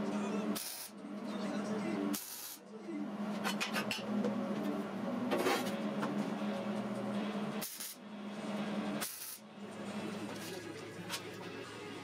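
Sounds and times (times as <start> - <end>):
welding hiss: 2.2 - 2.6, 7.6 - 8.0, 9.0 - 9.4
background music with sustained tones: 8.1 - 12.0.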